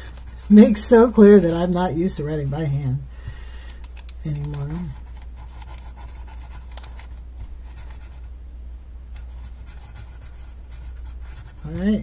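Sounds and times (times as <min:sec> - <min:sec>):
pencil scratching on paper: 0:04.8 - 0:08.3, 0:09.2 - 0:12.0.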